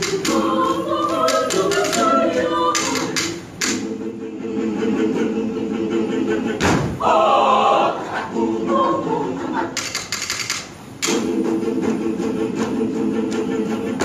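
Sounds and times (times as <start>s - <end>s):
choir singing chords: 0.0s - 10.2s, 10.9s - 14.0s
sharp clicks: 9.8s - 11.2s.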